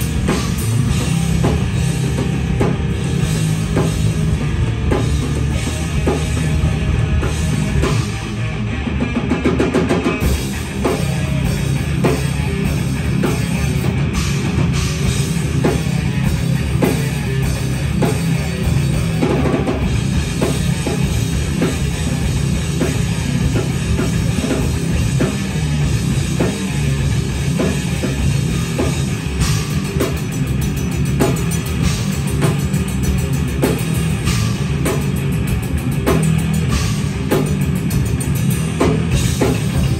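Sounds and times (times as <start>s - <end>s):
distorted electric guitars: 0.0s - 39.9s
drum kit pounding: 0.0s - 39.9s.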